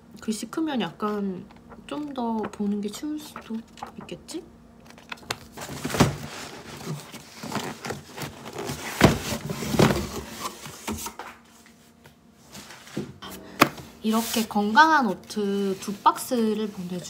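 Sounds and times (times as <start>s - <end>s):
cardboard carton rustling and scraping: 5.5s - 11.1s, 12.4s - 14.9s.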